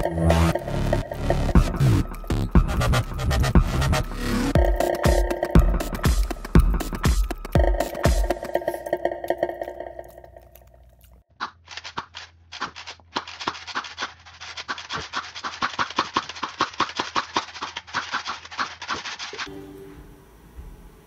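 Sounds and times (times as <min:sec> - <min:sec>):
electronic music: 0:00.0 - 0:10.6
toy blaster firing rapid snaps: 0:11.4 - 0:19.5.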